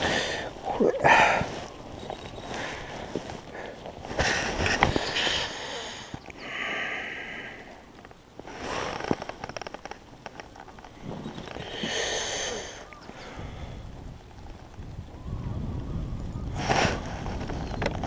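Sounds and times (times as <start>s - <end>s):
person sniffing and breathing hard: 11.6s - 13.6s.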